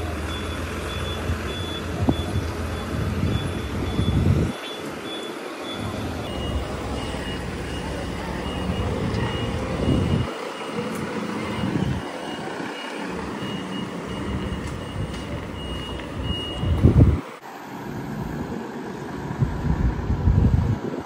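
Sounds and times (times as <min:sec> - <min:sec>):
truck diesel engine running: 0:00.0 - 0:04.6, 0:05.4 - 0:20.6
vehicle warning beeper: 0:00.0 - 0:17.2
loud low buffet: 0:05.6 - 0:20.8.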